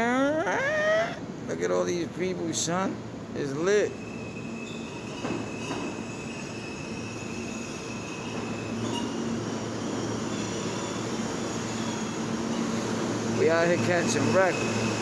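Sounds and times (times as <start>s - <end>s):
train rumble: 0.0s - 15.0s
train wheels squealing: 3.5s - 15.0s.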